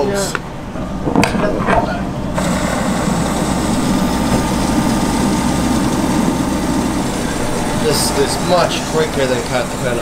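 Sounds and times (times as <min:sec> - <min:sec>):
low hum: 0:00.5 - 0:10.0.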